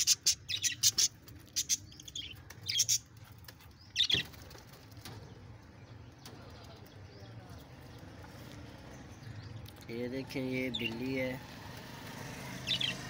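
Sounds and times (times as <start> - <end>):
budgerigars chirping: 0.0 - 3.0, 12.6 - 13.0.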